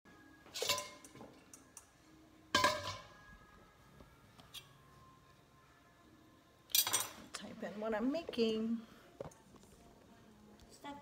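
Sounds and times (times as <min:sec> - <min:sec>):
kitchenware clinking: 0:00.5 - 0:01.9, 0:02.5 - 0:03.2, 0:06.7 - 0:07.4.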